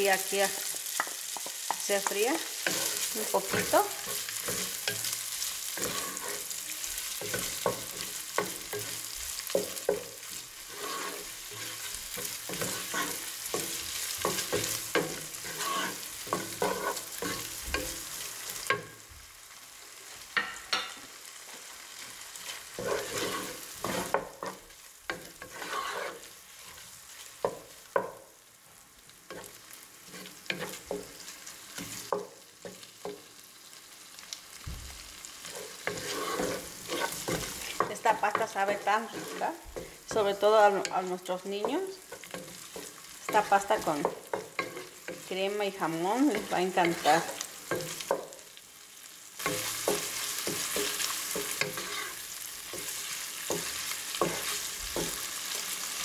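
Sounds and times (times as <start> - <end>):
ham sizzling in a pot: 0.0 - 56.0
wooden spoon scraping a pot: 1.0 - 18.0, 22.4 - 27.5, 29.3 - 32.2, 35.4 - 45.4, 49.4 - 55.7.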